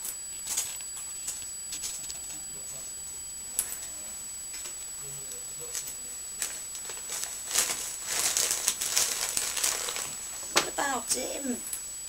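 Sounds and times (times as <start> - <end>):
wrapping paper rustling: 6.4 - 10.6.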